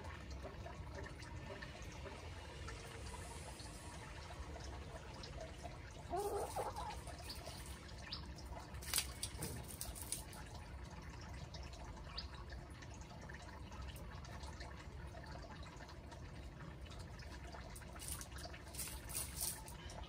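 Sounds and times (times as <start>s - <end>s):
chicken call: 6.1s - 7.0s
chicken foraging in dry leaves: 6.1s - 7.8s, 8.8s - 10.5s, 17.8s - 19.8s.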